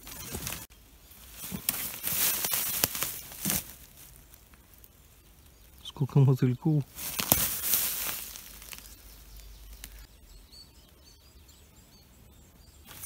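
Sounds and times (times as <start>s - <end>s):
tall grass rustling: 0.0s - 11.2s, 12.8s - 13.0s
high bird chirps: 4.7s - 13.0s.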